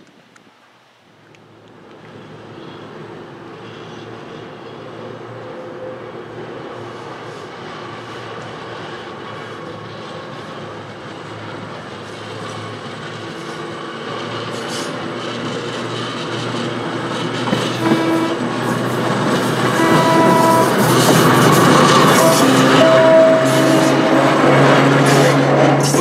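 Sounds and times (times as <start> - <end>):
electric trolley car running: 1.2 - 26.0
rail clatter: 6.8 - 26.0.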